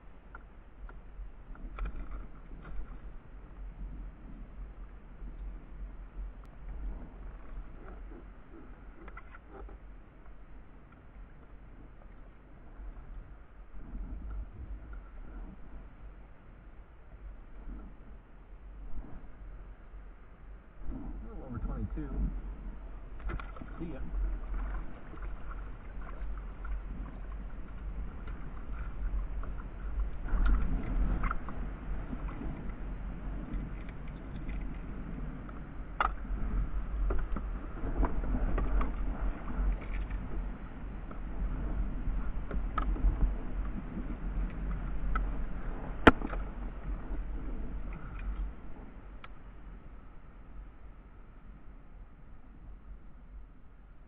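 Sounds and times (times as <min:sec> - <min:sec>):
water lapping against hull: 0:00.0 - 0:53.9
steady low rumble: 0:00.0 - 0:54.0.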